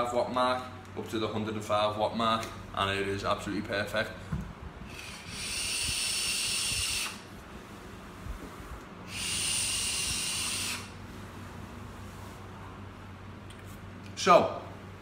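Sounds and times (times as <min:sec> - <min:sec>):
airy hiss of vape draw: 0:09.1 - 0:10.9.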